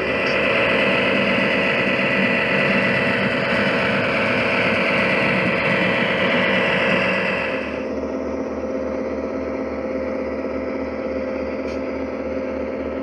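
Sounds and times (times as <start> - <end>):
locomotive hiss: 0.0 - 7.9
diesel locomotive engine humming: 0.0 - 13.0.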